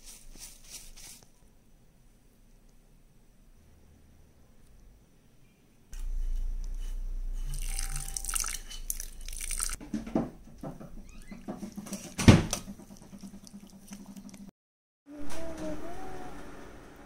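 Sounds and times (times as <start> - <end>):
water pouring into metal bowl: 7.4 - 9.8.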